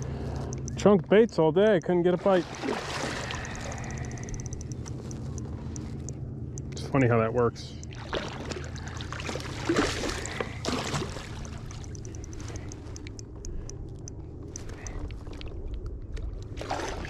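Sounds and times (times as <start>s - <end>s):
small clicks: 0.0s - 2.0s, 3.3s - 7.0s, 11.4s - 16.6s
steady low hum: 0.0s - 17.0s
water splashing and sloshing: 2.0s - 6.1s, 7.7s - 17.0s.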